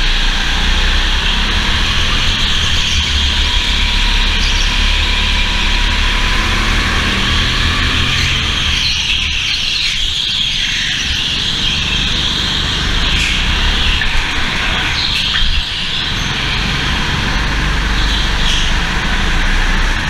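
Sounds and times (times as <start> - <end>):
go-kart engine racing: 0.0 - 20.0.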